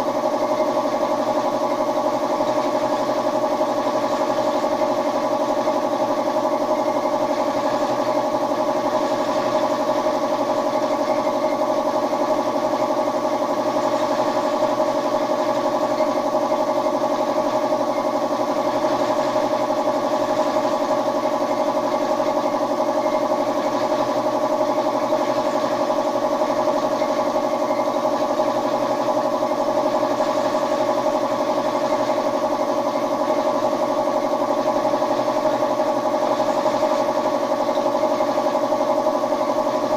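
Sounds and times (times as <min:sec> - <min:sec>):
air compressor humming: 0:00.0 - 0:39.9.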